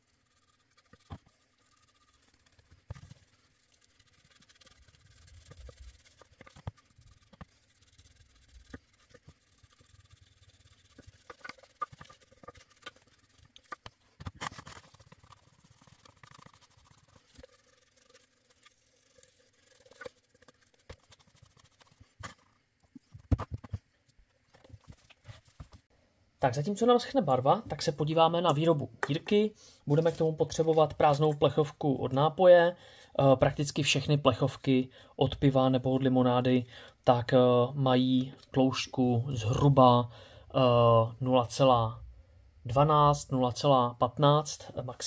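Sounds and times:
paintbrush brushing wood: 0:00.0 - 0:22.5, 0:29.9 - 0:32.2
scrubbing: 0:00.0 - 0:23.7, 0:29.9 - 0:32.2.

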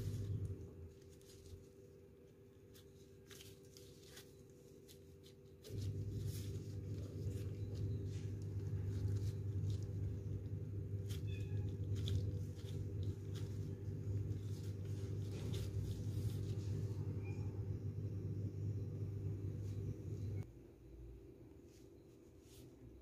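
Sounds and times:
gloved hands rustling dough: 0:00.0 - 0:17.7
low hum: 0:00.0 - 0:22.3.

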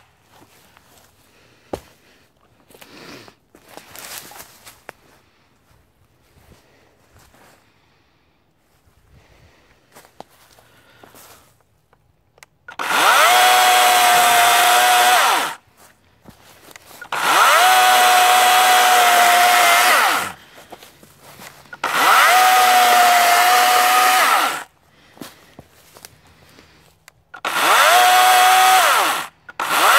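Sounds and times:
cordless chainsaw whining: 0:12.6 - 0:15.7, 0:16.6 - 0:24.8, 0:26.4 - 0:29.9.

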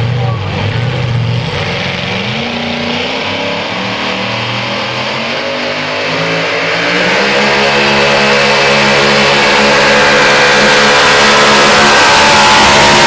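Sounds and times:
truck engine at high revs: 0:00.0 - 0:13.0.

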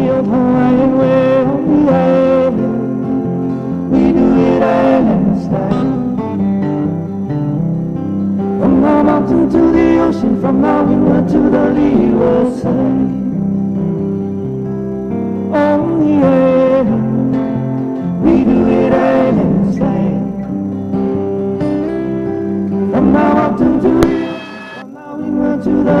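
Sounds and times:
person singing: 0:00.0 - 0:06.2, 0:08.6 - 0:13.5, 0:15.5 - 0:17.3, 0:18.2 - 0:20.5, 0:22.9 - 0:26.0
guitar: 0:00.0 - 0:26.0.

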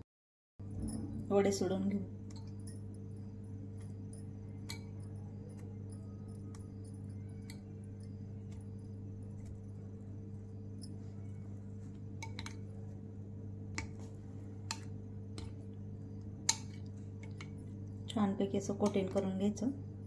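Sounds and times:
steady low hum: 0:00.6 - 0:20.0
metal spoon clinking glass bowl: 0:02.2 - 0:08.6.

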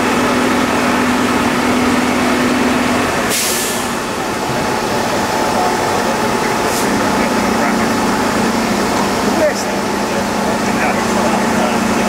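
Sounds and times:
diesel engine running: 0:00.0 - 0:12.0
sharp hiss of escaping air: 0:03.3 - 0:04.0.

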